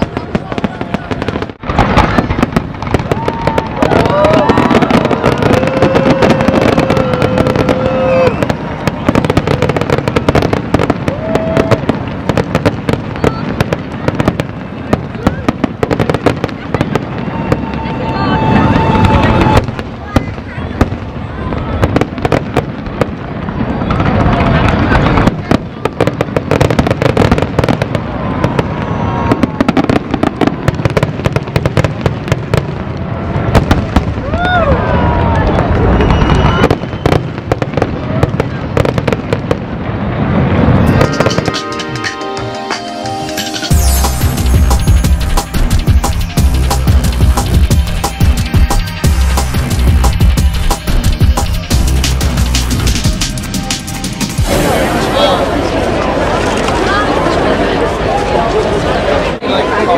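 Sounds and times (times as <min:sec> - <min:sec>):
fireworks bangs and crackles: 0:00.0 - 0:59.9
long held tone: 0:40.8 - 0:45.3.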